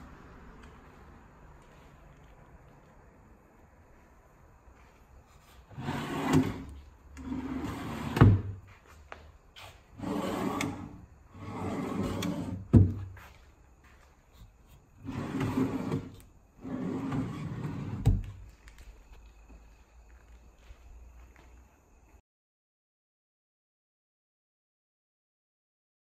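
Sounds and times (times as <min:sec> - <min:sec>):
drawer rumbling on slides: 0:05.7 - 0:08.6, 0:10.0 - 0:13.1, 0:15.0 - 0:18.2.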